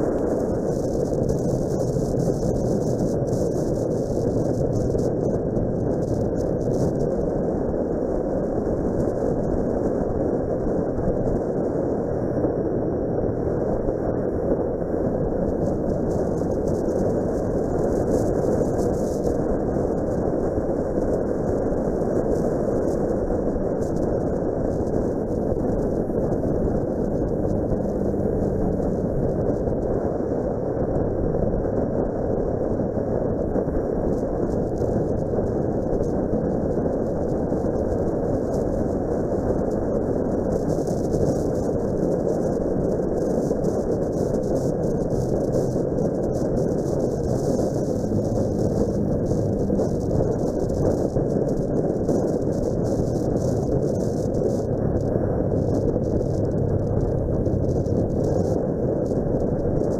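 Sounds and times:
wind rushing on microphone: 0.0s - 59.9s.

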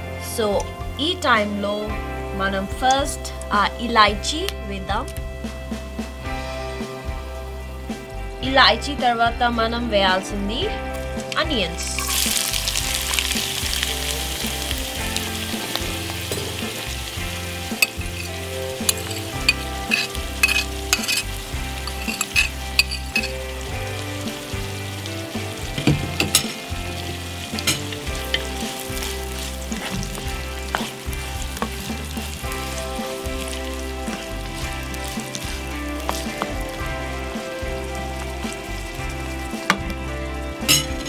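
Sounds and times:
onions sizzling in oil: 10.6s - 41.0s.

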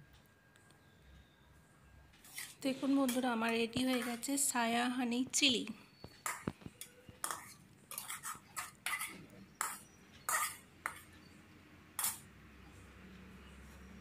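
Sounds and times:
metal spatula scraping a wok: 2.2s - 4.4s, 6.2s - 11.2s, 12.0s - 12.3s.

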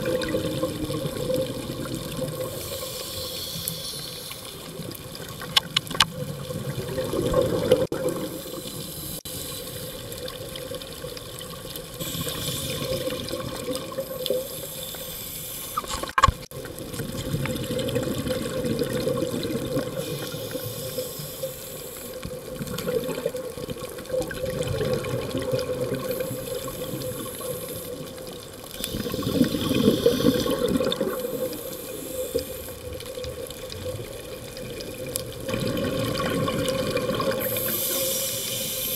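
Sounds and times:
diver's exhaled bubbles gurgling: 0.0s - 3.3s, 4.5s - 8.8s, 9.8s - 14.6s, 15.8s - 21.1s, 22.3s - 38.2s
regulator hiss: 2.4s - 4.8s, 8.2s - 10.2s, 12.0s - 13.1s, 14.0s - 16.0s, 20.0s - 22.2s, 26.1s - 28.1s, 28.8s - 32.8s, 37.4s - 38.9s.

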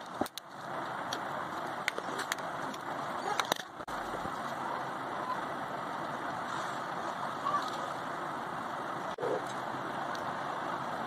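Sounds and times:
steady background noise: 0.0s - 11.0s.

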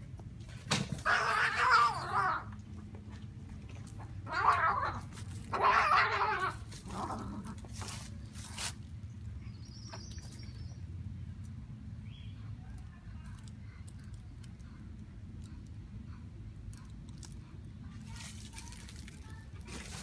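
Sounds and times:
cats yowling and screeching: 1.0s - 2.6s, 4.2s - 7.6s.

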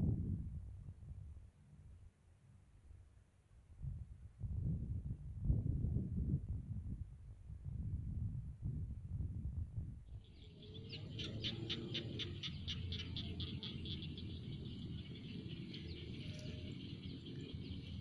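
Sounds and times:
low rumble: 0.0s - 1.9s.

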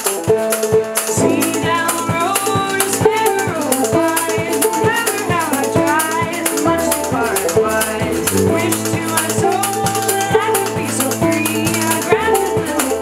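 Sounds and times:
acoustic guitar and banjo: 0.0s - 13.0s
tuba low bass notes: 8.1s - 11.3s.

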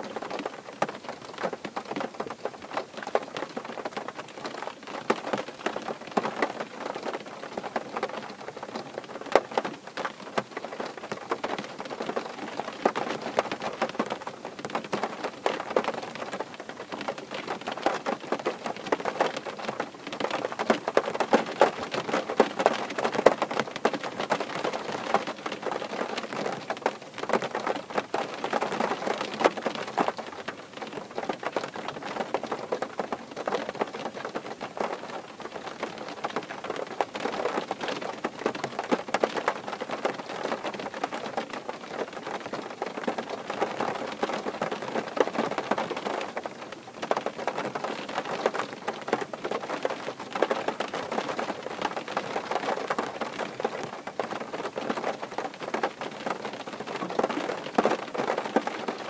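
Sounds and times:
rain on car roof: 0.0s - 59.0s.

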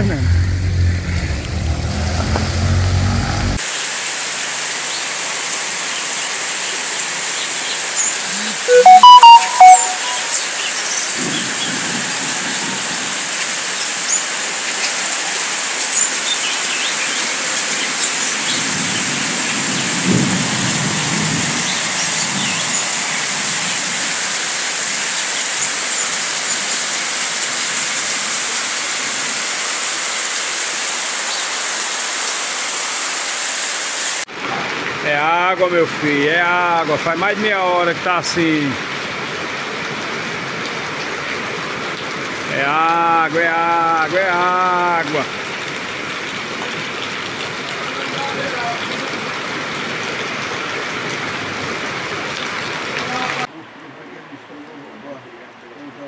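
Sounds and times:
heavy rain pouring: 0.0s - 53.5s
loud brief pitched sound: 8.7s - 10.3s.

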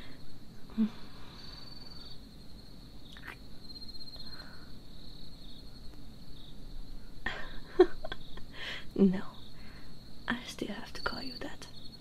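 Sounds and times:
crickets chirping: 0.0s - 12.0s.

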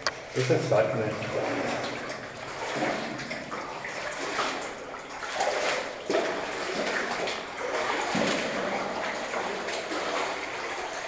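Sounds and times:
water sloshing and splashing: 0.0s - 11.0s.

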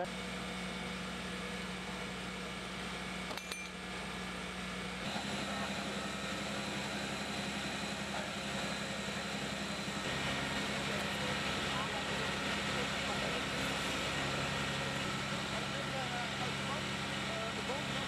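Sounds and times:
diesel engine and pump running: 0.0s - 18.0s
short metallic clink: 3.3s - 3.8s.

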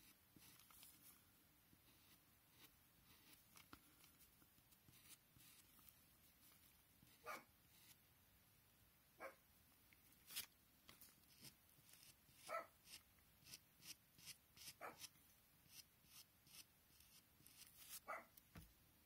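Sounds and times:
pencil scratching on paper: 1.8s - 4.2s, 4.8s - 8.0s, 11.2s - 18.2s.

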